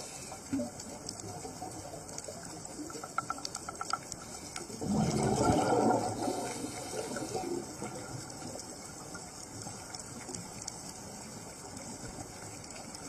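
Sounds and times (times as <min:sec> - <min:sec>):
light clicks and ticks: 0:00.0 - 0:04.8, 0:06.2 - 0:13.0
rush of underwater bubbles: 0:04.3 - 0:10.4.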